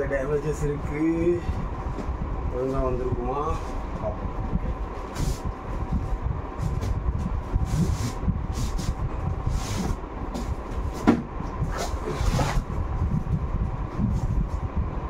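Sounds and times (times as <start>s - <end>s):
cardboard boxes scraping: 11.7s - 12.7s.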